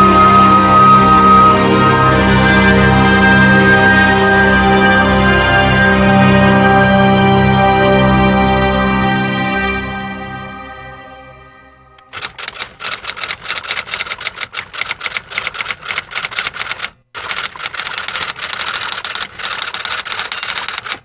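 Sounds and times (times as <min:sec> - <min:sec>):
music: 0:00.0 - 0:12.2
typewriter keys clacking: 0:12.1 - 0:21.0.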